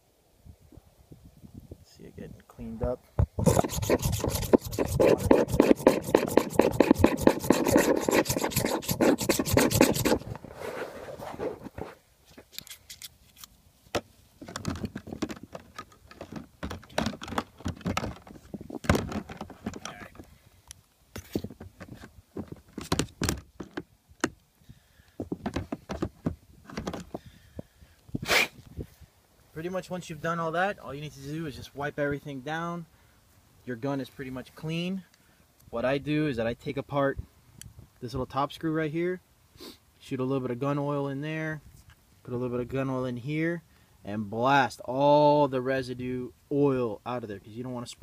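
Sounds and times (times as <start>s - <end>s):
drill bit scraping inside nozzle: 3.4s - 10.4s
clicks of parts handled: 12.3s - 13.6s.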